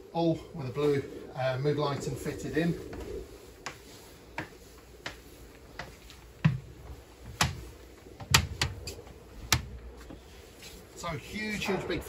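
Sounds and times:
footsteps on wooden stairs: 2.9s - 10.9s.

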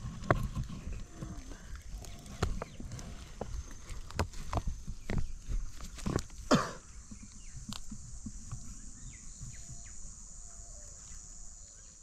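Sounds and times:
birds chirping: 0.0s - 12.0s
insects humming: 0.0s - 12.0s.

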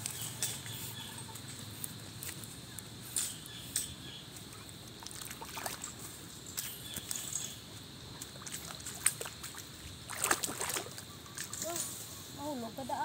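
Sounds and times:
shallow water splashing: 5.0s - 6.1s, 8.2s - 11.6s.

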